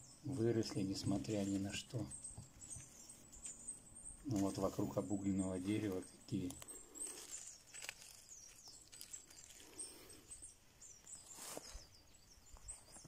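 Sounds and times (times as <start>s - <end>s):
small birds chirping: 0.0s - 13.0s
footstep in dry leaves: 0.6s - 2.1s, 4.2s - 13.0s.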